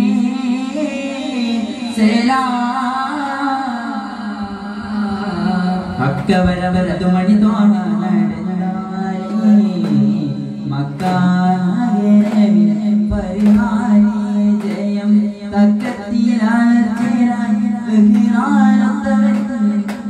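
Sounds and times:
devotional chant singing: 0.0 - 20.0
frame drum beats: 9.3 - 11.5, 12.1 - 20.0.

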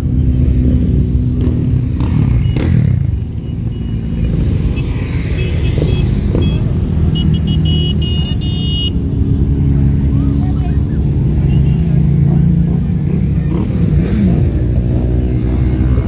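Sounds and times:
motorcycles riding slowly past: 9.0 - 16.0.

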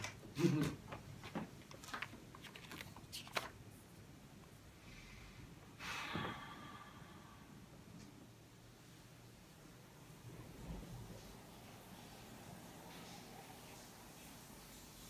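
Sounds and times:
page turning swish: 1.8 - 3.6.

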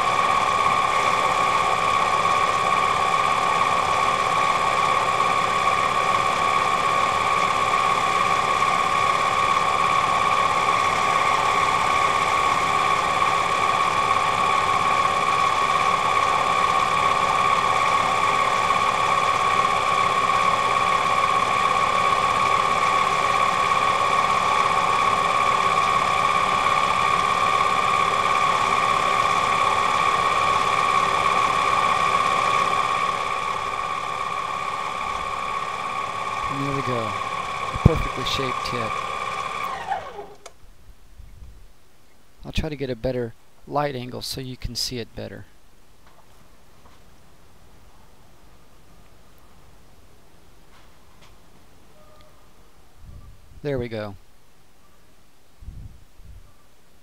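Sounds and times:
lathe whining: 0.0 - 40.6.

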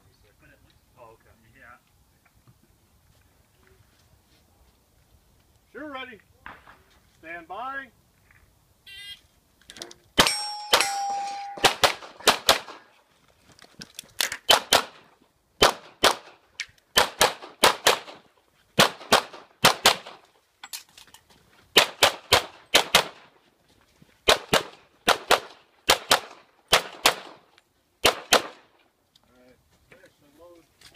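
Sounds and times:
handgun shots: 10.2 - 12.8, 14.5 - 15.0, 24.3 - 27.4.

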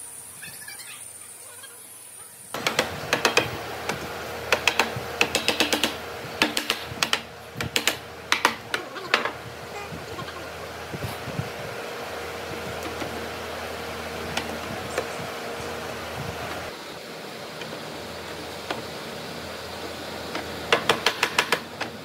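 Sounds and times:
mallet tapping wood: 4.5 - 9.3.

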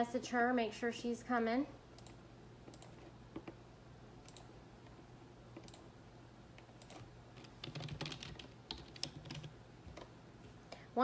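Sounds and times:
faint keyboard typing: 2.0 - 3.6, 4.2 - 5.9, 6.5 - 10.2.

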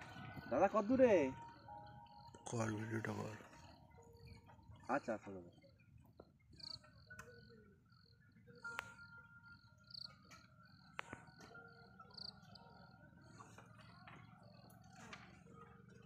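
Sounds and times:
high insect chirping: 0.1 - 13.0
soft clicks: 8.7 - 9.1, 10.0 - 11.7.

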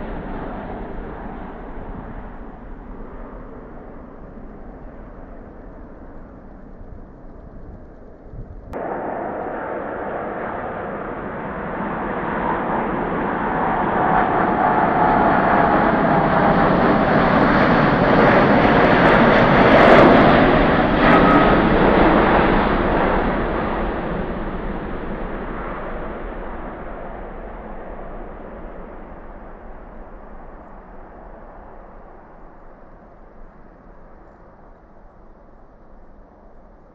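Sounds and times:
jet airliner taking off: 0.0 - 36.9.

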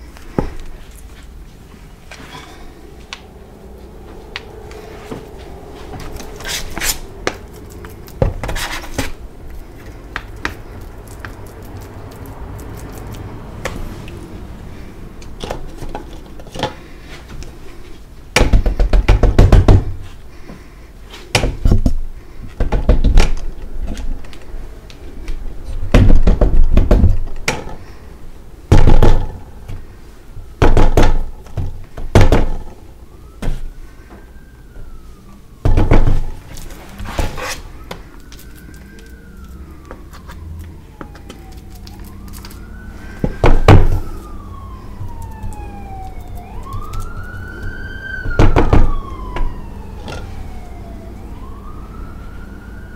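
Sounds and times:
crumbly chalk rustle: 0.0 - 14.9, 36.3 - 43.3, 43.9 - 47.7
faint siren: 0.8 - 18.3, 23.2 - 52.9
rapid knocking and thudding: 18.4 - 20.0, 25.9 - 27.3.

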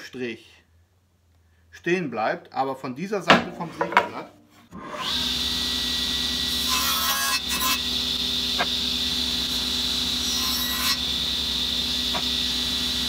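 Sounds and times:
saw blade rasping through wood: 4.7 - 13.0
table saw running: 4.8 - 13.0.

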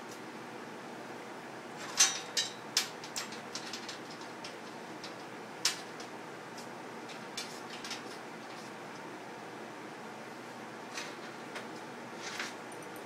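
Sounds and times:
metallic clicks and clanks: 1.8 - 6.1.

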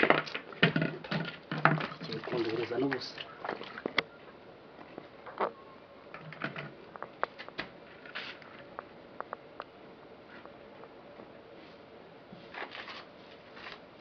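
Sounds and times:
gourd being handled: 4.8 - 8.8, 11.6 - 14.0.

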